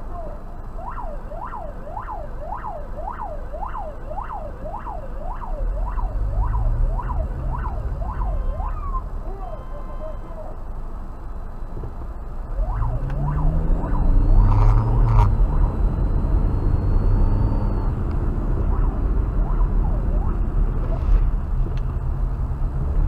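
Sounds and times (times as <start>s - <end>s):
car engine and road drone: 0.0s - 23.0s
police siren whoops: 0.2s - 10.6s, 12.5s - 20.5s.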